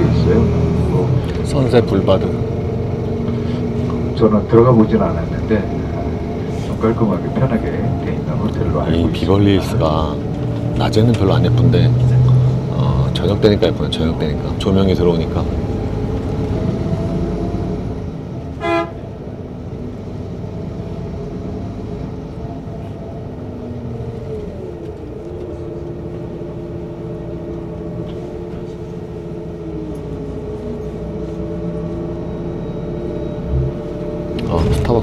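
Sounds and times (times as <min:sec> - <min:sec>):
bus engine drone: 0:00.0 - 0:35.0
short car horn toot: 0:18.6 - 0:19.0.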